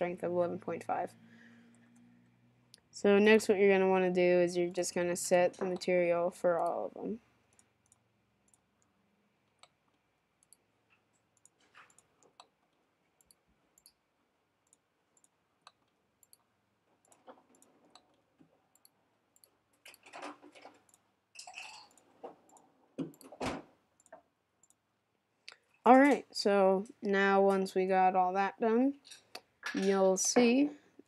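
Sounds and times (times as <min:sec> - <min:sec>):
computer mouse clicking: 0:07.5 - 0:14.0, 0:14.6 - 0:21.0, 0:24.0 - 0:24.8.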